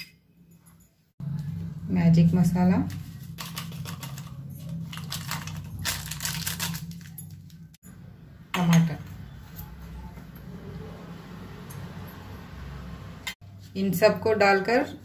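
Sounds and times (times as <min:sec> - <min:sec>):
foil sachet crinkling: 0:02.9 - 0:07.7.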